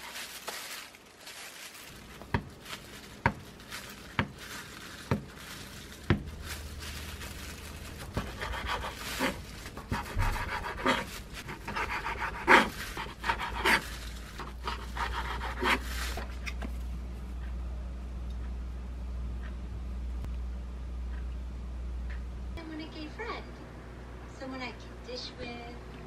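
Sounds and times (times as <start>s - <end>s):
knife sawing through seaweed: 8.2s - 16.2s.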